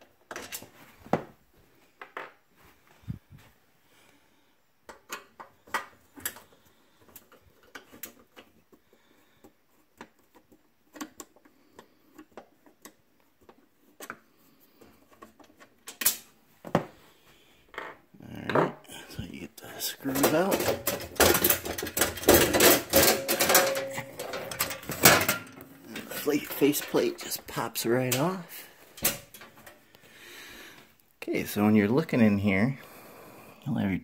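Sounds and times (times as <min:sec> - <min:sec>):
screwdriver clicking and scraping metal: 0:20.0 - 0:28.4.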